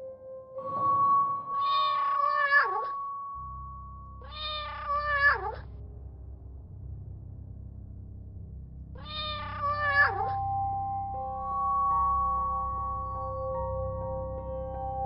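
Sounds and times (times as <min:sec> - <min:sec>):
background music held tone: 0:00.0 - 0:15.0
cat meowing: 0:01.6 - 0:03.0, 0:04.2 - 0:05.6, 0:09.0 - 0:10.5.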